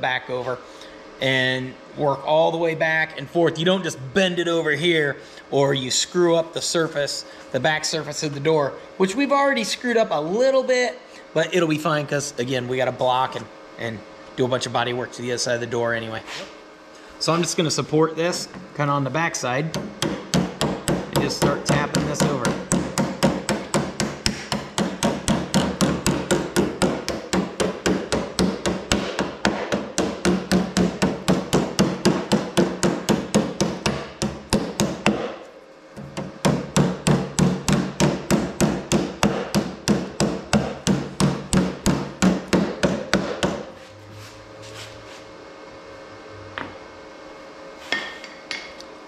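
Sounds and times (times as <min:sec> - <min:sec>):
hammer tapping on sheet steel: 0:19.7 - 0:35.3, 0:36.2 - 0:43.7.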